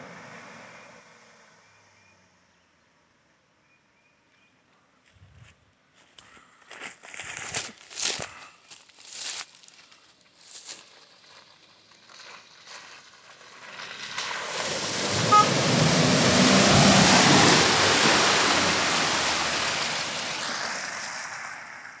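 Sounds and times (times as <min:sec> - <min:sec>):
car engine and tyre noise: 0:00.0 - 0:03.8, 0:04.8 - 0:22.0
mud and water splashing: 0:07.2 - 0:22.0
brief beep: 0:15.3 - 0:15.5.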